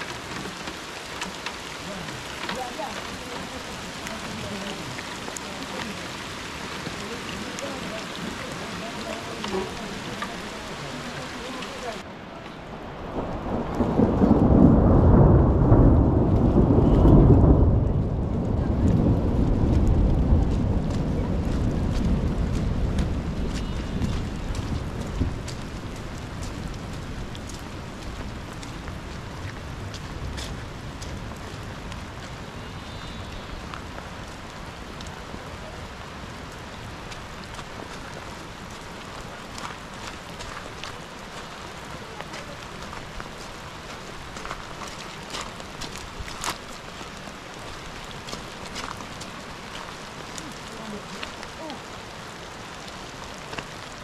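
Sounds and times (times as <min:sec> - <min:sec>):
steady rain: 0:00.0 - 0:54.0
thunder rumbling: 0:12.6 - 0:40.3.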